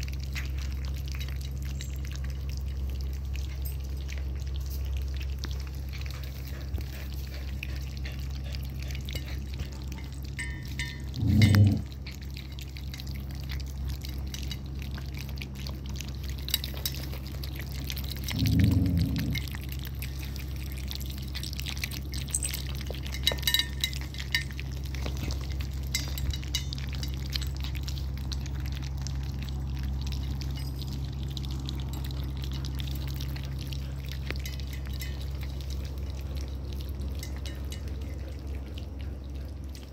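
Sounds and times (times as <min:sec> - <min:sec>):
low hum: 0:00.0 - 0:39.9
puppies lapping food: 0:00.0 - 0:39.9
clinks against metal bowl: 0:08.8 - 0:12.2, 0:21.8 - 0:27.8, 0:34.2 - 0:35.6, 0:37.1 - 0:38.4.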